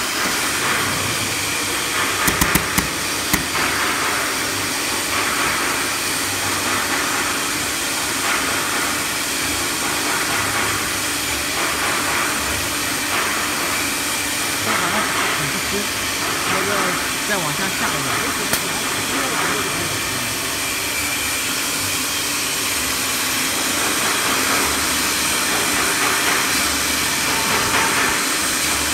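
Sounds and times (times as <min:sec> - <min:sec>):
router spindle whirring: 0:00.0 - 0:03.8
sharp clicks: 0:02.2 - 0:03.6.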